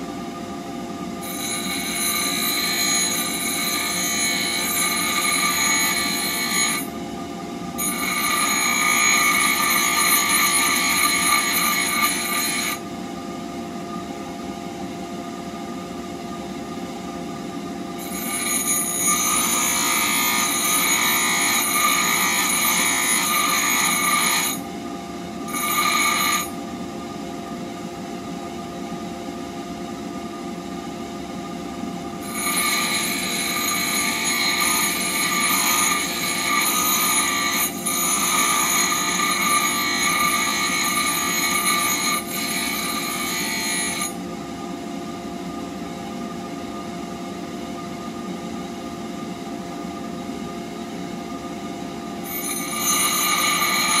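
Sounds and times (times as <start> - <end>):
grinding screech of steel: 1.2 - 6.9, 7.8 - 12.8, 18.0 - 24.6, 25.5 - 26.6, 32.2 - 44.2, 52.3 - 54.0.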